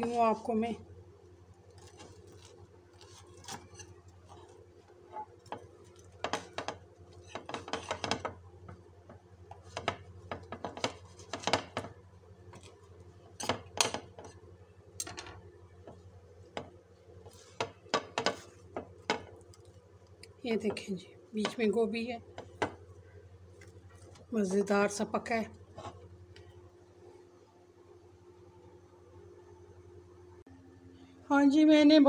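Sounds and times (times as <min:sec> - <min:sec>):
knife scraping on ceramic plate: 0:01.8 - 0:04.5.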